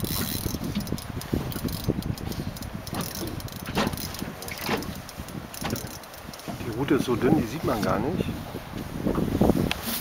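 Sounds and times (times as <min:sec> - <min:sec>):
fishing reel clicking: 0:00.0 - 0:06.5.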